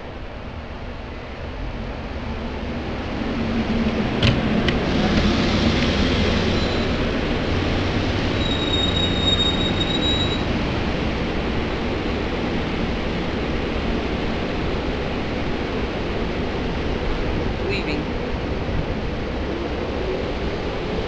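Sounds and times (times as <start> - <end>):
train cars rumbling past: 0.0 - 21.0
high squeal: 5.4 - 7.1, 8.3 - 10.6.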